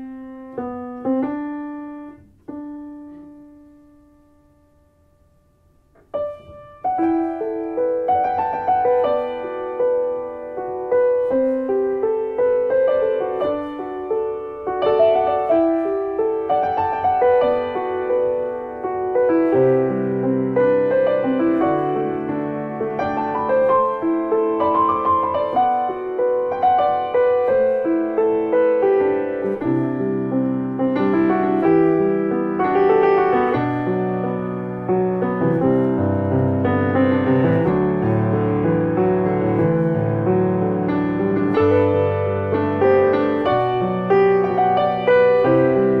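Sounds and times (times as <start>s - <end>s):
piano melody: 0.0s - 46.0s.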